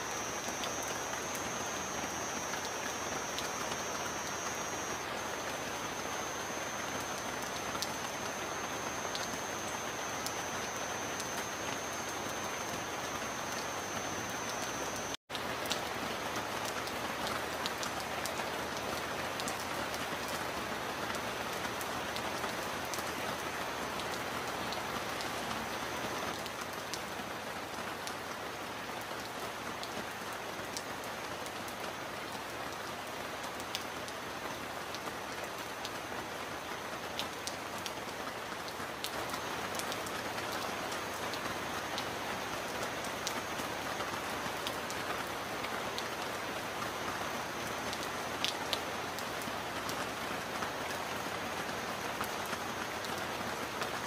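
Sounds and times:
raindrops ticking: 0.0 - 15.8
heavy rain: 0.0 - 54.0.

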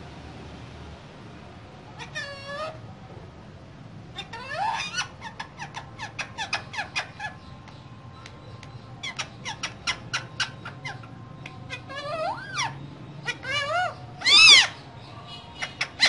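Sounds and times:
parakeets squeaky calls: 2.0 - 2.8, 4.2 - 16.0.

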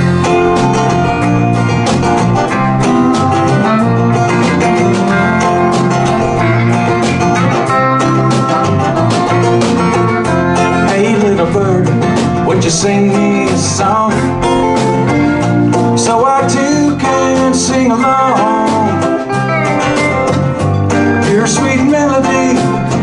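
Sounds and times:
hand drums: 0.0 - 16.3
electric guitars: 0.0 - 23.0
strummed acoustic guitar: 0.0 - 23.0.

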